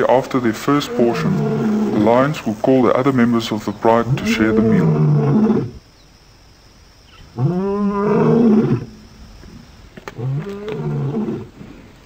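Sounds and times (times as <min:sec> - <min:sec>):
lion roaring: 0:00.7 - 0:02.5, 0:04.0 - 0:05.8, 0:07.4 - 0:08.9, 0:10.2 - 0:11.8.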